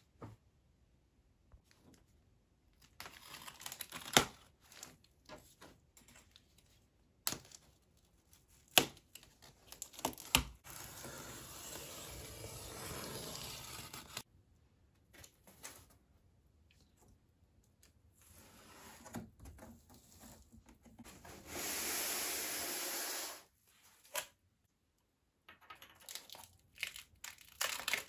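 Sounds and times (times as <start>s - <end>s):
cardboard scraping: 10.6s - 14.2s.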